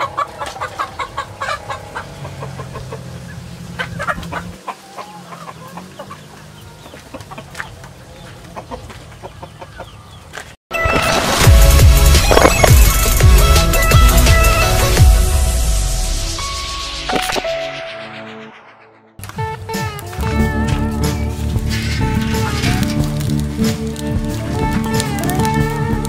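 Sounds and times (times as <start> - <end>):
chickens clucking: 0.0 - 10.6
electronic music with heavy bass: 10.8 - 26.0.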